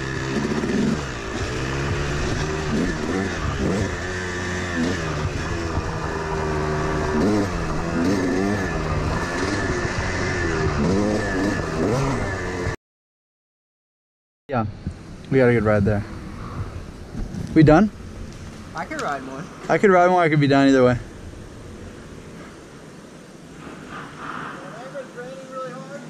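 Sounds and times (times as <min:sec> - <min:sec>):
dirt bike engine revving: 0:00.0 - 0:12.8.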